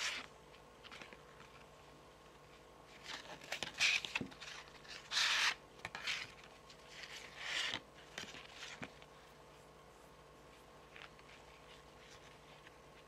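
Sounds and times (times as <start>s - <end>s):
fingernails scratching cards: 3.1s - 6.4s.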